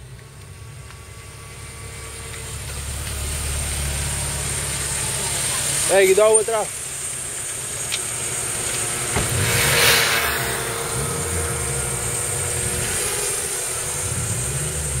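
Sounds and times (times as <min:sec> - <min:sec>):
car engines idling: 0:00.0 - 0:15.0
brief rushing noise: 0:09.1 - 0:14.3.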